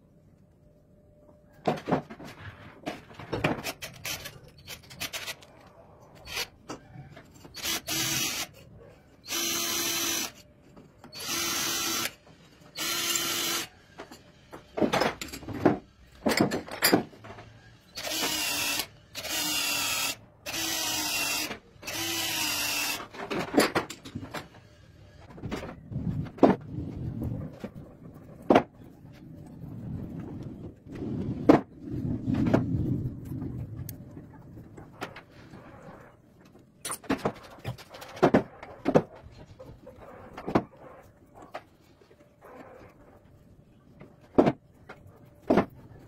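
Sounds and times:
cordless drill running: 7.6 - 8.5, 9.3 - 10.4, 11.2 - 12.2, 12.8 - 13.7, 18.0 - 23.1.

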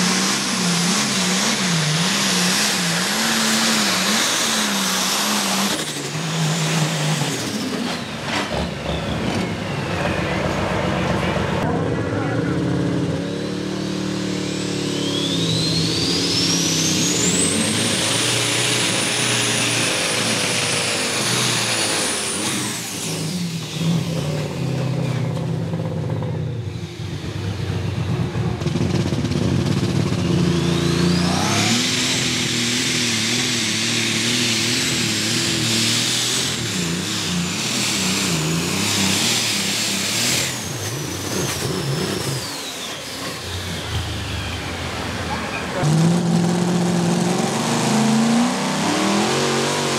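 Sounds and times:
tractor engine whining: 0.0 - 49.9.

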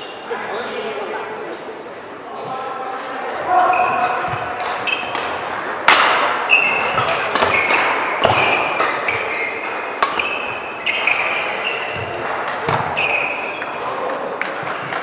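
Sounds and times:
shoes squeaking on court: 3.6 - 5.4, 6.4 - 13.8
rackets hitting shuttlecock: 3.8 - 15.0.

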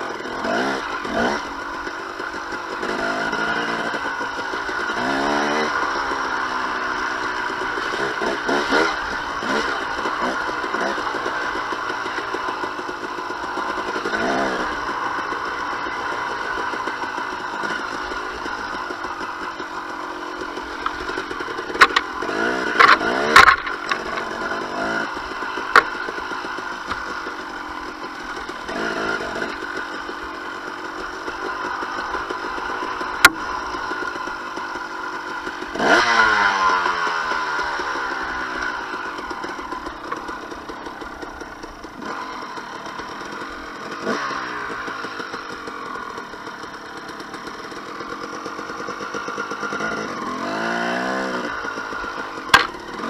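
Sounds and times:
two-stroke engine revving: 0.0 - 53.0
sharp knocks and clatter: 20.8 - 24.4, 52.4 - 52.9.

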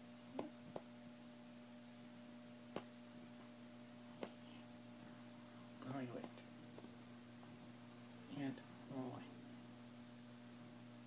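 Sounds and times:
steady low hum: 0.0 - 11.0.

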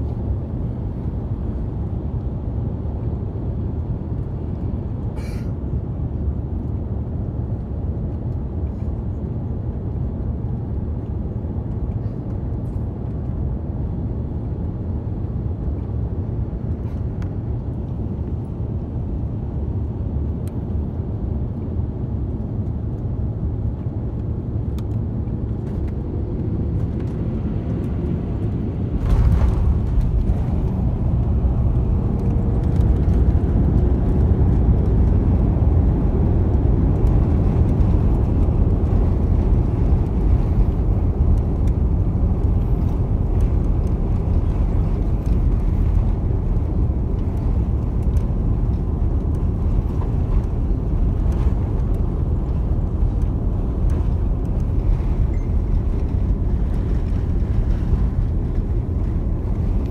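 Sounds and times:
airliner cabin rush: 25.3 - 59.9.

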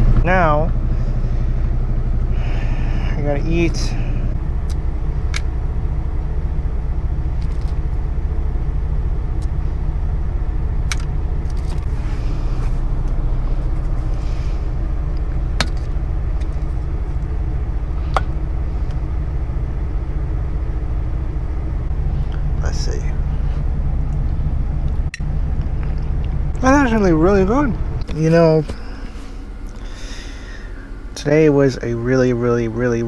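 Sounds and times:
diesel engine idling: 0.0 - 33.0.

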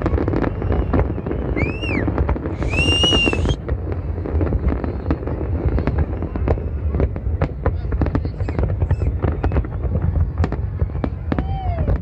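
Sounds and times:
shrill firework whistles: 0.0 - 3.6, 8.4 - 12.0
fireworks popping and crackling: 0.0 - 12.0.

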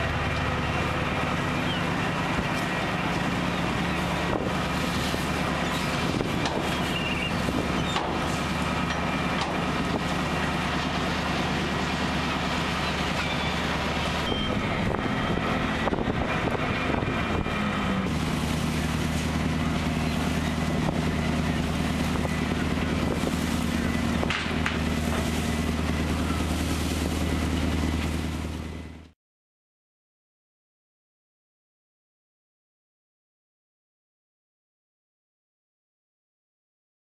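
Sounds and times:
boat engine and machinery drone: 0.0 - 29.2.

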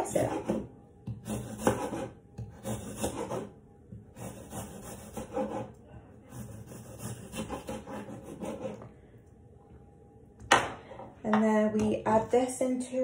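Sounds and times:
knife slicing apple on board: 0.0 - 8.9.

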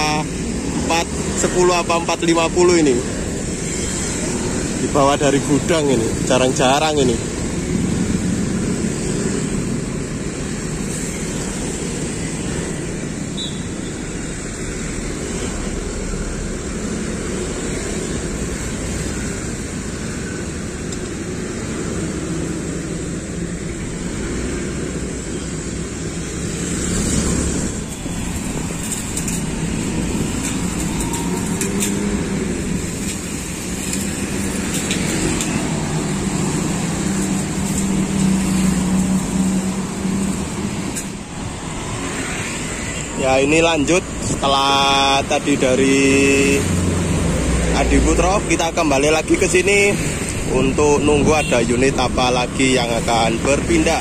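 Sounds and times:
motorcycles and cars passing: 0.0 - 54.0.

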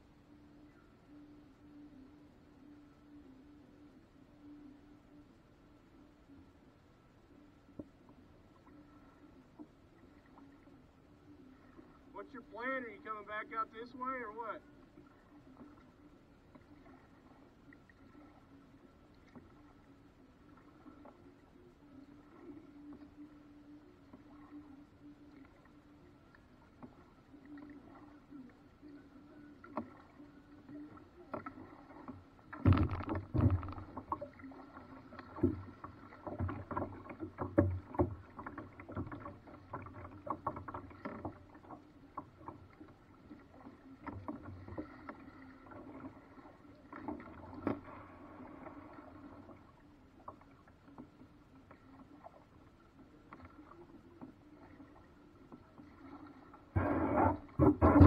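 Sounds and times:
paddles knocking boat hull: 56.8 - 58.0.

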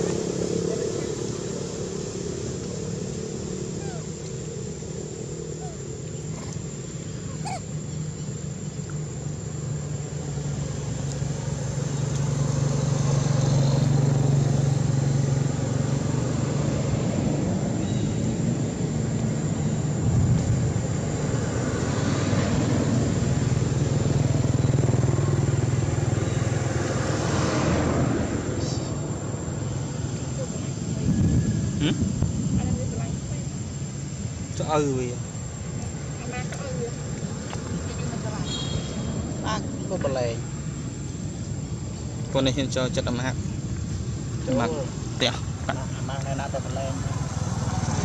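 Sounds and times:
vehicle engines rumbling: 0.0 - 48.0.

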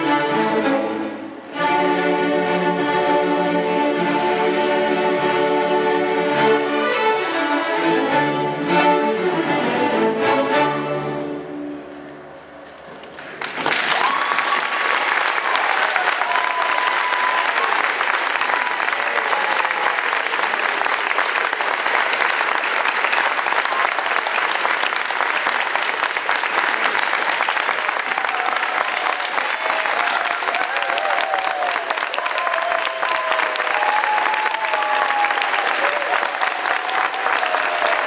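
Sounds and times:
string orchestra chord: 0.0 - 12.3
audience applause: 13.0 - 38.0.

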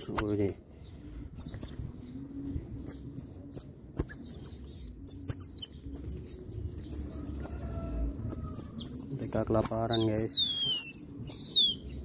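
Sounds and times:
baby otters chirping: 1.4 - 1.8, 2.8 - 12.0.

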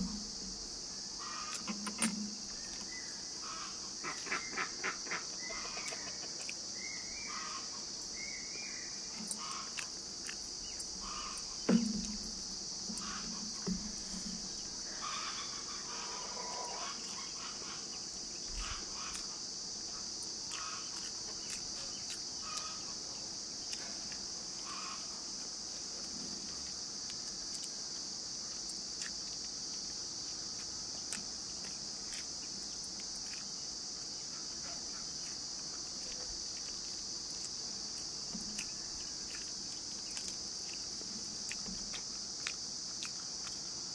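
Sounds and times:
insects droning: 0.0 - 43.9
mouth clicks and smacks eating: 9.2 - 14.8, 20.1 - 22.8, 26.5 - 43.9
dull knock: 11.7 - 14.5.

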